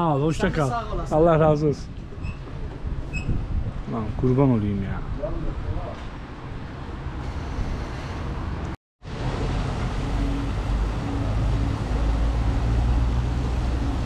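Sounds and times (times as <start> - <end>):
car engine and road noise rumble: 5.5 - 14.0.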